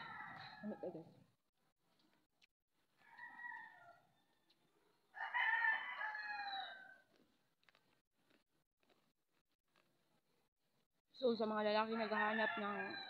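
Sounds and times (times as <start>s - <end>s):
rooster crowing: 0.0s - 0.8s, 3.0s - 7.1s, 12.0s - 13.0s.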